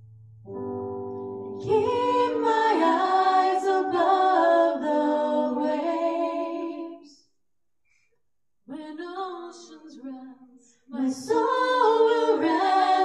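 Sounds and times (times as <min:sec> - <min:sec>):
women singing in harmony: 0:01.6 - 0:07.2, 0:08.7 - 0:13.0.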